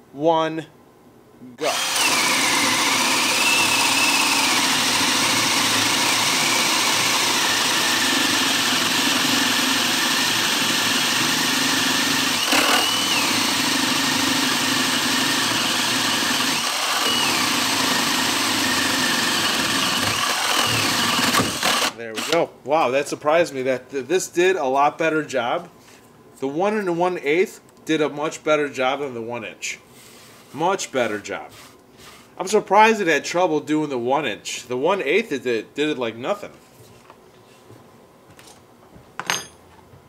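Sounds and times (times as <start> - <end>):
cordless drill boring through wood: 1.6 - 22.4.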